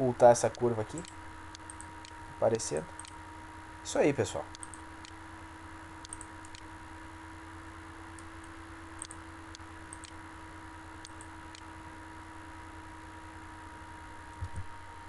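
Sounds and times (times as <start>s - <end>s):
electrical hum and hiss: 0.0s - 15.0s
computer mouse clicks: 0.5s - 2.2s, 3.0s - 3.2s, 4.5s - 5.2s, 6.0s - 6.7s, 8.1s - 10.2s, 11.0s - 11.7s.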